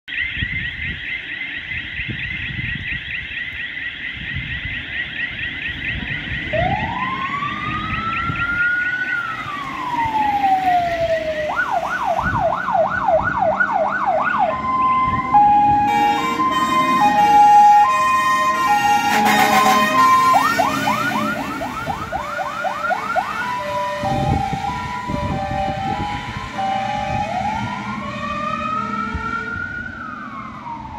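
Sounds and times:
siren wail rising and falling: 0:00.1 - 0:30.9
siren warble: 0:00.1 - 0:30.9
siren yelps: 0:00.1 - 0:30.9
loud horn blast: 0:15.6 - 0:21.8
two-note horn tones: 0:15.8 - 0:21.1.

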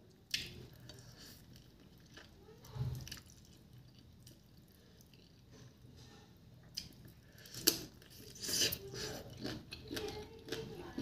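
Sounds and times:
person eating wet mouth noises: 0:07.5 - 0:10.6.

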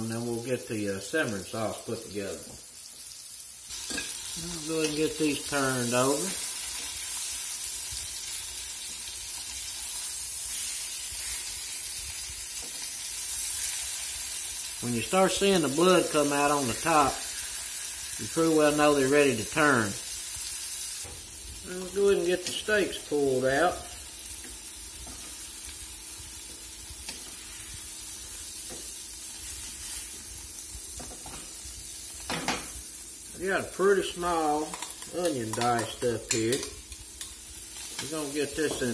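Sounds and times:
steaks sizzling in a skillet: 0:01.0 - 0:38.9
metal tongs clicking on pan: 0:34.7 - 0:38.1.

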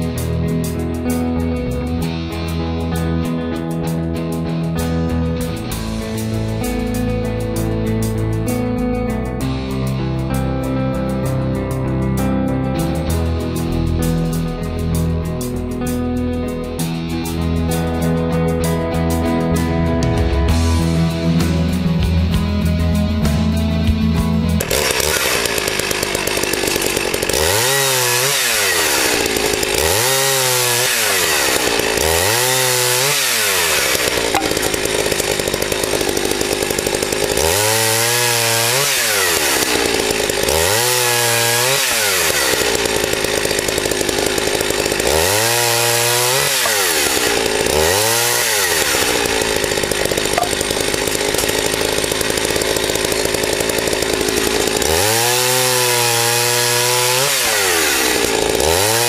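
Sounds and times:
chainsaw cutting logs: 0:00.0 - 0:59.0.

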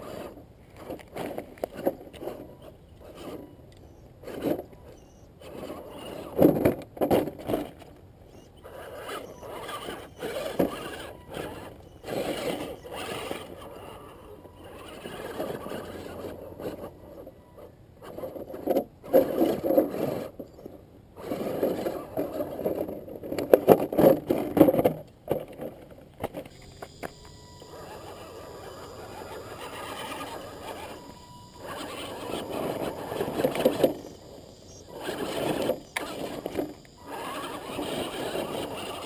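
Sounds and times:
rc car motor and gears whirring: 0:00.0 - 0:39.0
tyres scraping: 0:21.2 - 0:39.0.

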